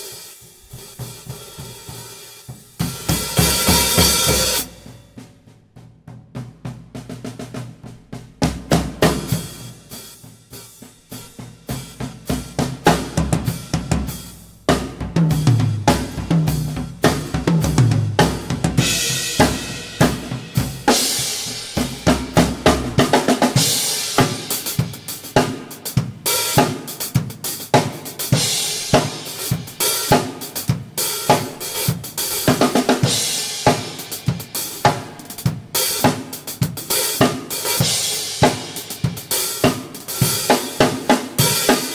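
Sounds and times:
cymbal wash: 0:00.0 - 0:05.1
drum kit groove: 0:00.0 - 0:41.9.

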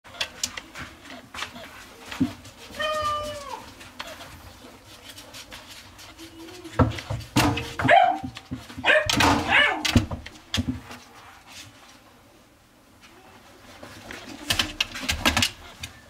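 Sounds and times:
puppy yipping and barking: 0:07.8 - 0:09.9.

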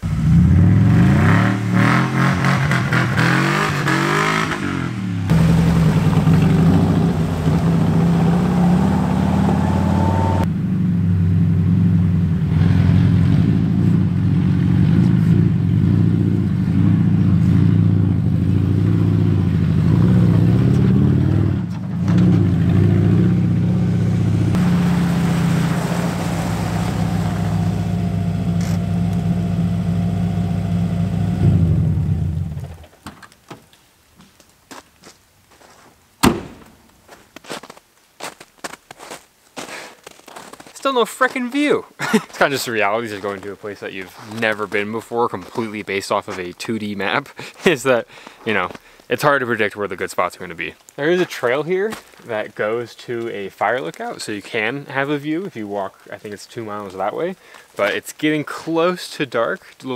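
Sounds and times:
van engine running under load: 0:05.1 - 0:32.8.

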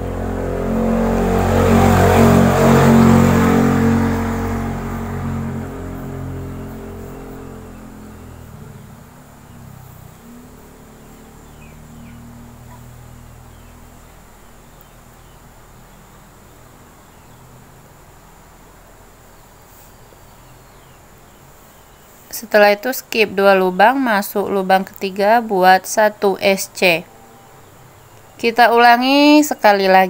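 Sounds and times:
low engine-like hum: 0:00.0 - 0:30.0
steady hiss: 0:14.4 - 0:22.7.

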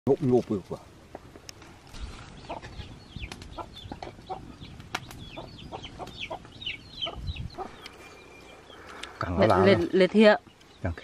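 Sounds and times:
chickens clucking: 0:02.0 - 0:10.6.

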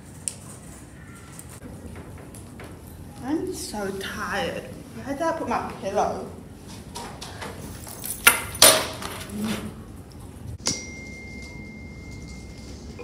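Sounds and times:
high-pitched ringing ping: 0:10.6 - 0:13.0.

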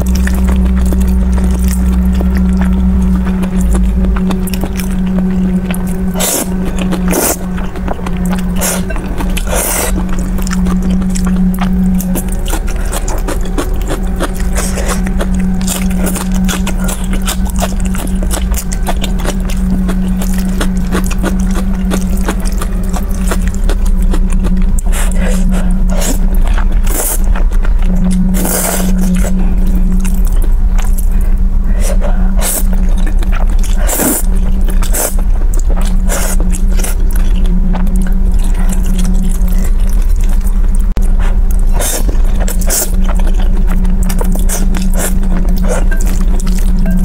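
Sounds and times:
slurping noodles: 0:00.0 - 0:31.0, 0:31.7 - 0:40.5, 0:41.2 - 0:47.0
steady low hum: 0:00.0 - 0:47.0
wet chewing and crunching: 0:00.0 - 0:47.0.

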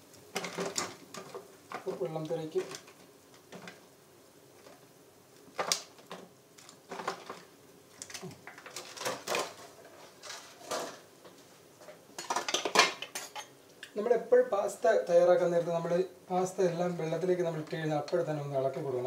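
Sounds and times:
dishes and pot clattering: 0:11.9 - 0:13.6.

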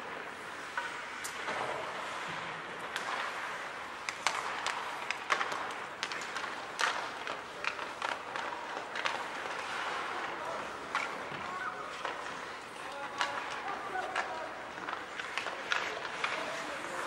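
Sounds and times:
hockey sticks and puck clacking: 0:00.0 - 0:17.0
skates on ice: 0:00.0 - 0:17.0
arena noise: 0:06.1 - 0:17.0.

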